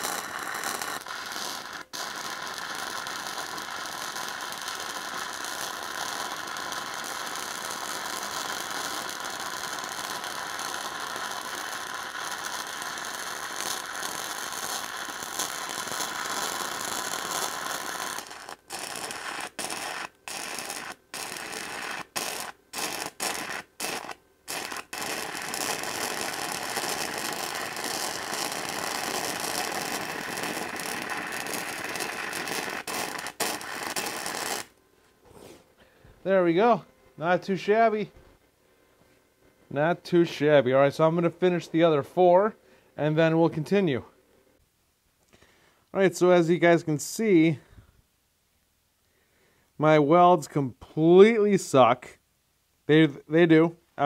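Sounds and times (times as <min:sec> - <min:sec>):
welding arc crackling: 0:00.0 - 0:34.8.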